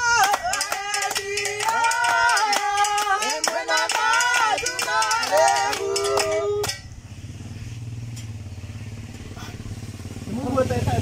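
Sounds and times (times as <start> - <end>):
group singing a hymn: 0.0 - 6.6
hand clapping: 0.0 - 6.9
low engine hum: 0.0 - 11.0.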